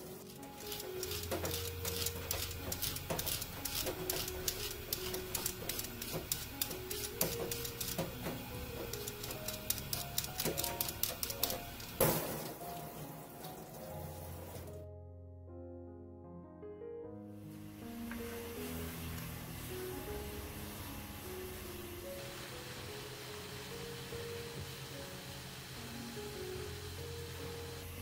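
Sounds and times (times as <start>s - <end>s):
vegetable peeler scraping cucumber: 0.0s - 11.9s
background music: 0.0s - 28.0s.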